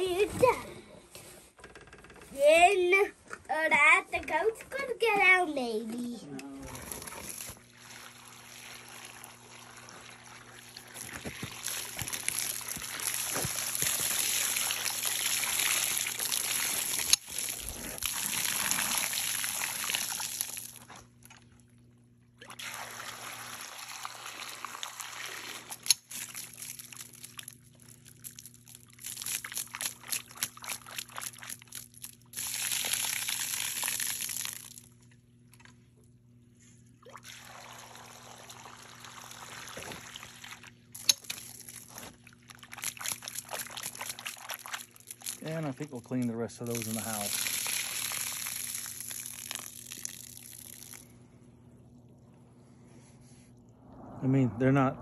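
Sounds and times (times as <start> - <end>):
water splashing and sloshing: 6.9 - 21.7, 24.8 - 36.0, 36.9 - 53.9
water pouring into steel bowl: 46.7 - 51.0.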